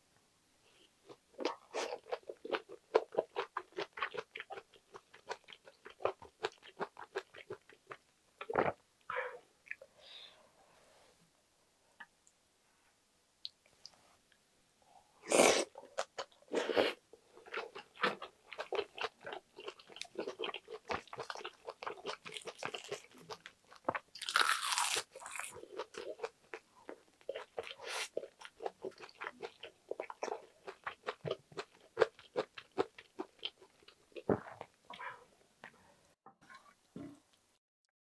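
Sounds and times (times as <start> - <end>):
crisp crunch of seaweed bite: 20.1 - 26.3.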